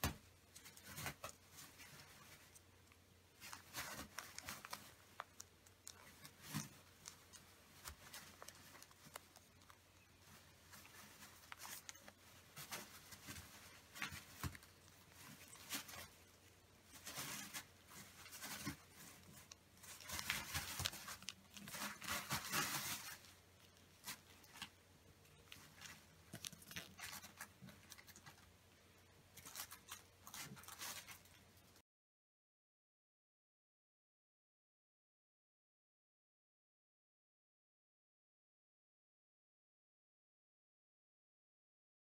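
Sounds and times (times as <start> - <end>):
paper crinkling and rustling: 0.1 - 28.5, 29.3 - 31.8.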